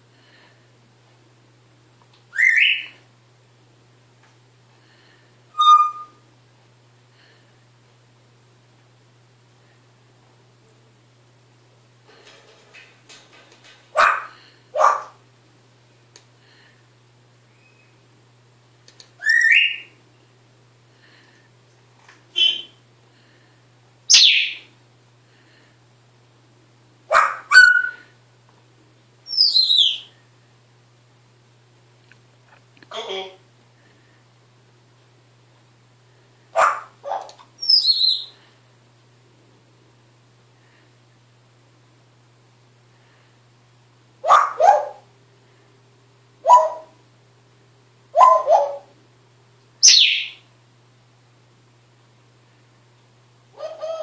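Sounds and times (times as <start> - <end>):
parrot calls: 2.3 - 3.0, 5.6 - 6.2, 13.9 - 15.2, 19.2 - 20.0, 22.4 - 22.8, 24.1 - 24.7, 27.1 - 28.1, 29.3 - 30.1, 36.6 - 38.4, 44.2 - 45.0, 46.4 - 47.0, 48.1 - 49.0, 49.8 - 50.4, 53.6 - 54.0
parrot whistling: 2.3 - 3.0, 5.5 - 6.2, 19.2 - 19.9, 22.4 - 22.8, 27.3 - 28.0, 29.3 - 30.1, 37.6 - 38.3, 49.8 - 50.4.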